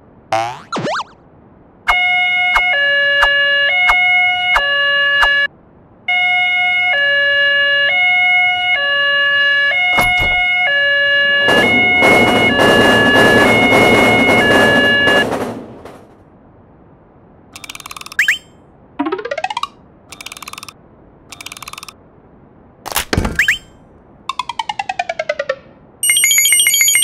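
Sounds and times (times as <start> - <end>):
two-tone crossing warning signal: 1.9 - 5.5, 6.1 - 15.4, 26.0 - 27.0
train passing with rushing clatter: 10.0 - 16.6.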